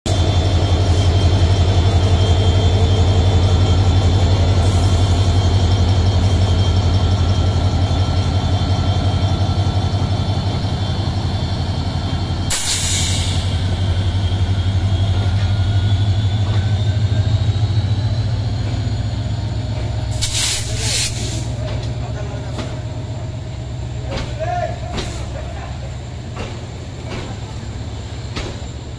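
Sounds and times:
diesel locomotive engine drone: 0.1s - 28.9s
air hissing: 12.5s - 14.0s, 20.1s - 21.6s.

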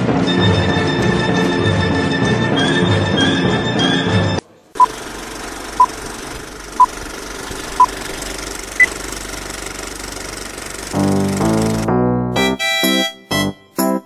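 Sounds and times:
film projector rattle: 4.8s - 11.9s.

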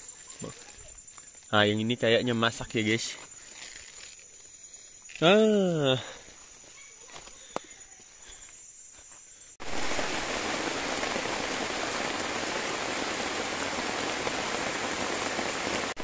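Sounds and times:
high insect drone: 0.0s - 16.0s
heavy rain on foliage: 5.1s - 6.2s, 9.6s - 16.0s.

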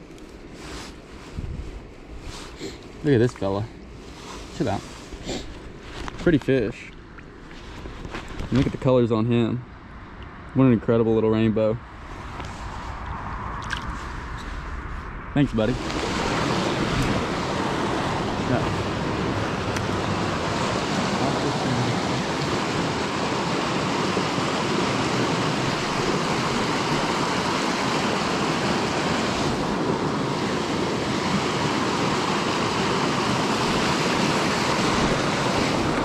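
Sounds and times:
creek rushing over rocks: 15.7s - 36.0s.

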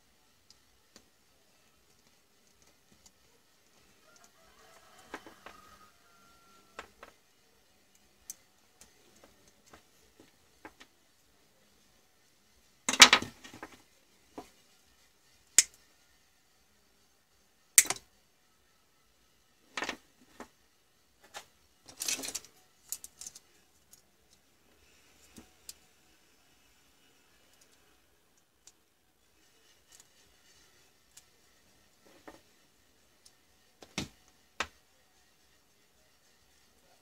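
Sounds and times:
tools and wire clicking: 1.9s - 5.9s, 7.8s - 10.9s, 15.4s - 15.9s, 17.8s - 18.1s, 21.3s - 24.4s, 27.5s - 28.9s, 29.8s - 30.2s, 31.0s - 31.3s.

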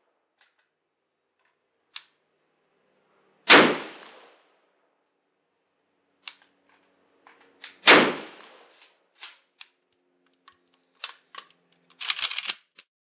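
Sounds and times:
sharp clicks and snaps: 1.4s - 2.2s, 6.2s - 7.8s, 8.4s - 12.9s
loud gunshot: 3.5s - 4.4s, 7.8s - 8.6s.

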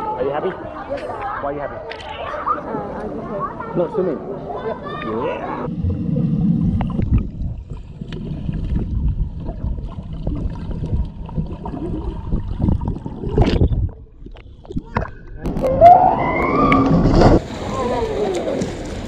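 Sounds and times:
underwater rumble and bubbling: 5.7s - 19.0s
surge of water: 14.7s - 19.0s.

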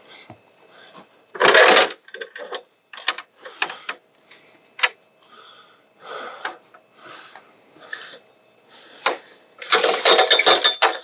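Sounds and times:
ladder rattling: 9.6s - 11.0s
ladder clicks and knocks: 9.7s - 11.0s.

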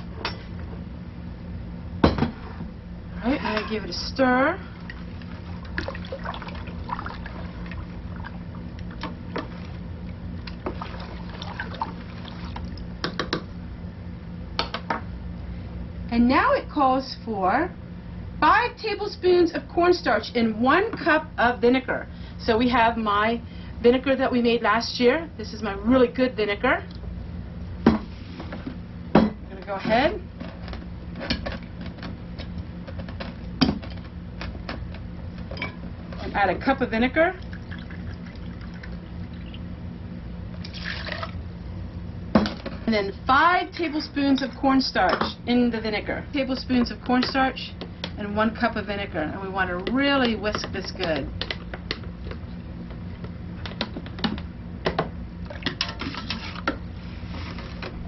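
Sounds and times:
wooden spoon stirring liquid: 49.8s - 54.3s, 55.5s - 57.9s.

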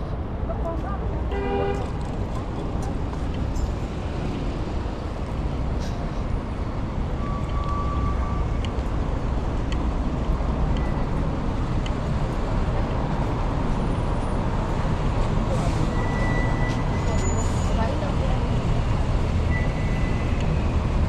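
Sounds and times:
traffic rumble: 0.0s - 21.0s.

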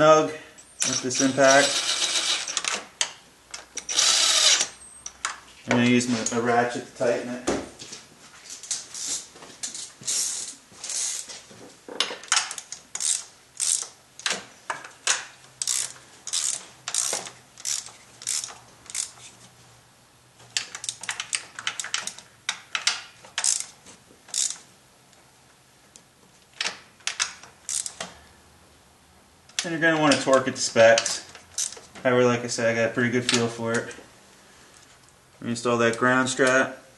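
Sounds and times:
socket ratchet clicking: 12.3s - 14.4s, 15.1s - 19.2s, 20.6s - 23.7s, 24.3s - 24.6s, 26.6s - 28.0s.

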